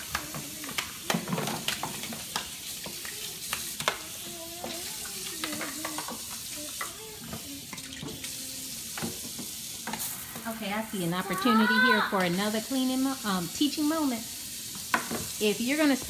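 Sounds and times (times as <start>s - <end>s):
plastic dishes clattering in sink: 0.0s - 4.0s, 8.9s - 10.1s, 14.8s - 15.3s
faucet running into steel sink: 0.0s - 16.0s.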